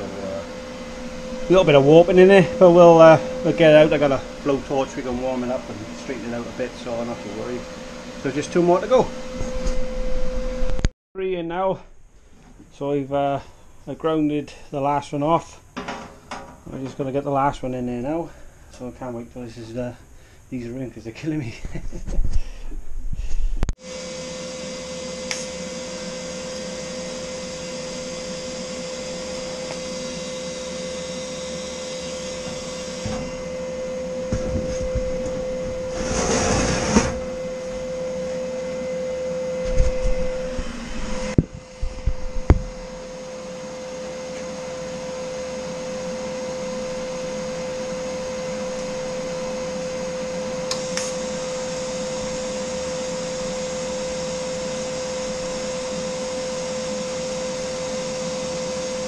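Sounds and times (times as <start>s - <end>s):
high tone: 0.0s - 10.9s
noisy burst: 0.0s - 10.9s
welding machine humming: 0.0s - 10.9s, 23.8s - 59.0s.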